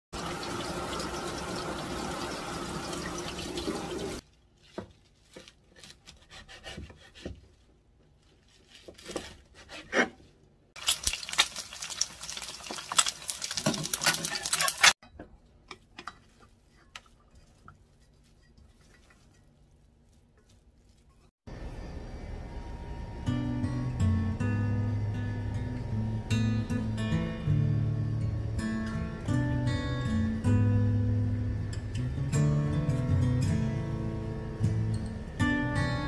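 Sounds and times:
tap water running into sink: 0:00.2 - 0:04.2
knife cutting on wooden board: 0:05.8 - 0:07.4, 0:08.9 - 0:10.2.

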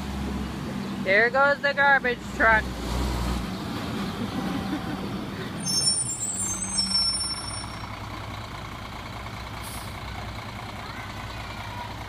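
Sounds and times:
diesel engine rumbling: 0:00.0 - 0:12.0
truck brakes squealing: 0:05.5 - 0:08.1.

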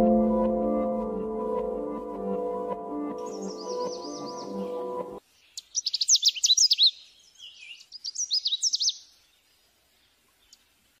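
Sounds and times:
songbird chirping and whistling: 0:02.9 - 0:05.0, 0:05.6 - 0:09.1.

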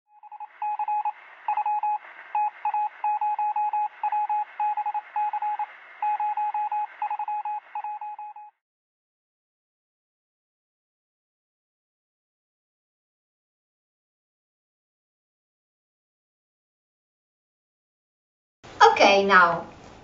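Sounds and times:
morse code beeps: 0:00.1 - 0:08.5.

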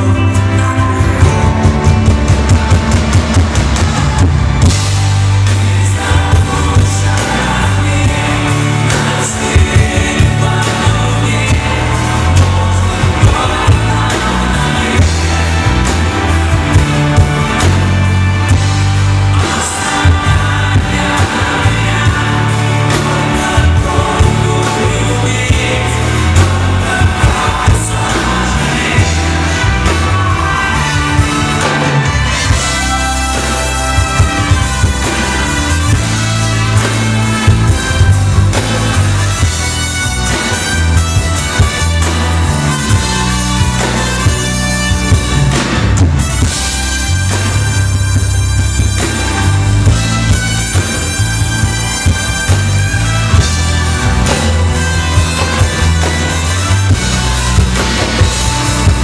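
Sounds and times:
man singing: 0:00.0 - 0:02.0, 0:05.2 - 0:17.9, 0:19.2 - 0:42.0
acoustic guitar: 0:00.0 - 0:59.0
bass line: 0:00.0 - 0:59.0
drum beat: 0:01.0 - 0:59.0.

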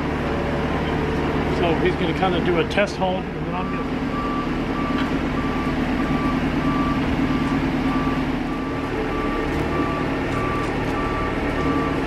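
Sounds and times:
engine running: 0:00.0 - 0:12.0
warning beeper beeps: 0:03.4 - 0:12.0.

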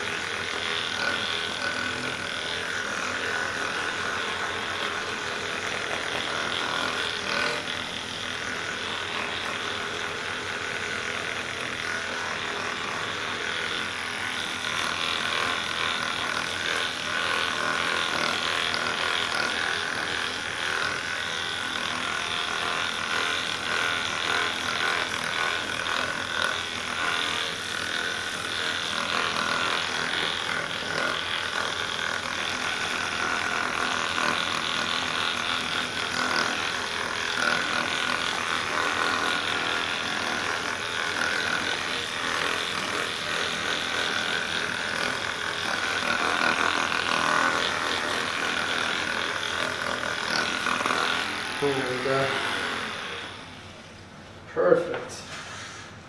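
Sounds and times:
massage gun motor whine: 0:00.0 - 0:56.0.

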